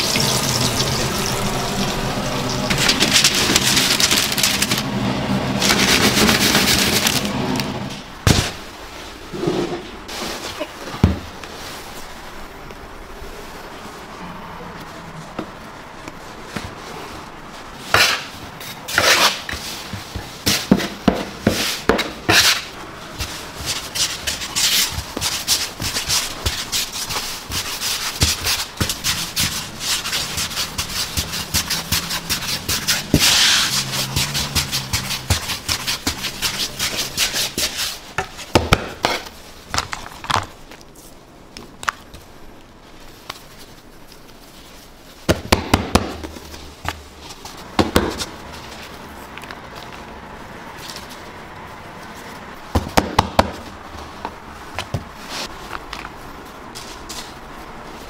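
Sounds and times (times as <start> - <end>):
food rubbing and scraping by hand: 0.0 - 8.0, 15.2 - 41.2, 53.6 - 58.0.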